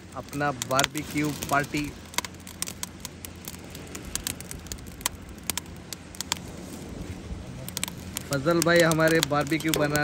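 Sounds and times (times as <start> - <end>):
wood fire crackling: 0.0 - 10.0.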